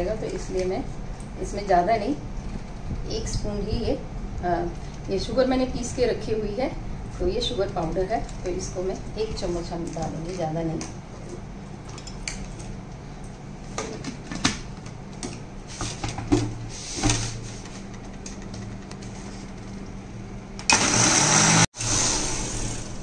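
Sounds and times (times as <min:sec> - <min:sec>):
electric mixer grinder running: 0:20.6 - 0:23.0.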